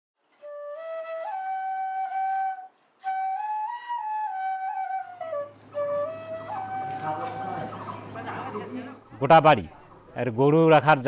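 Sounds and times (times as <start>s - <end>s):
solo flute melody: 0.4s - 8.6s.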